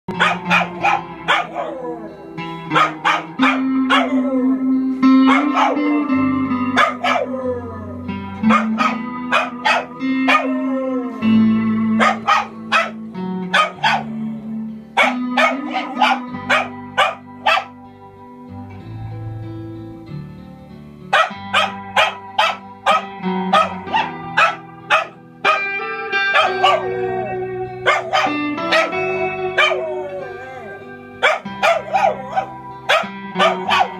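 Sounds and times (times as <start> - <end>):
music with sustained low notes: 0.1 - 33.9
small dog barking and yipping: 0.2 - 1.8, 2.7 - 4.2, 5.1 - 6.0, 6.6 - 7.3, 8.4 - 10.5, 12.0 - 14.1, 15.0 - 17.7, 21.1 - 27.0, 27.8 - 29.8, 31.2 - 33.9.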